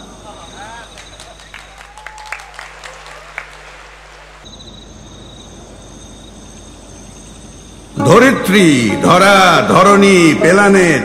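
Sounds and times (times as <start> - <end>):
audience clapping: 0.7 - 4.4.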